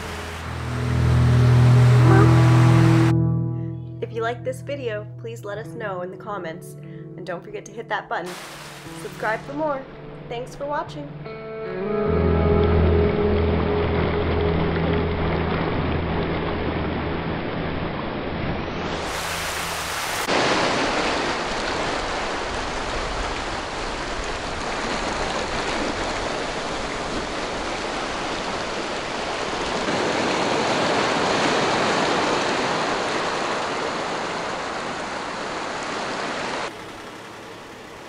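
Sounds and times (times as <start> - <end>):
waves washing on beach: 8.3 - 9.4, 16.2 - 38.0.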